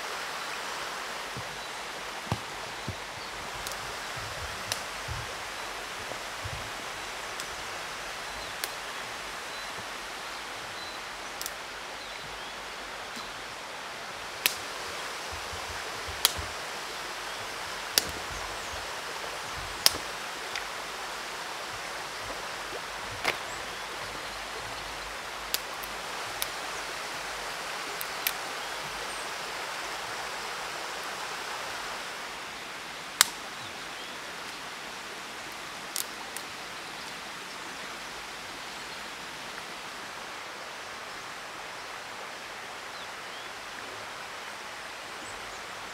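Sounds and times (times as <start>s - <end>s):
stream rushing: 0.0s - 45.9s
dry branches snapping: 2.2s - 5.3s, 8.5s - 9.2s, 11.3s - 11.7s, 14.4s - 16.6s, 17.2s - 26.6s, 33.2s - 33.5s, 35.5s - 36.5s.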